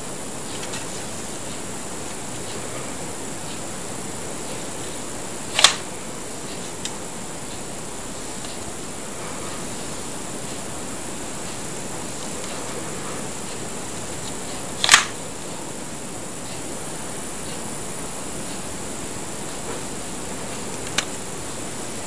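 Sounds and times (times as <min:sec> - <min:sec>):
steady hiss: 0:00.0 - 0:22.0
sharp plastic click: 0:05.6 - 0:05.8, 0:14.8 - 0:15.2
faint ticks: 0:19.5 - 0:21.8.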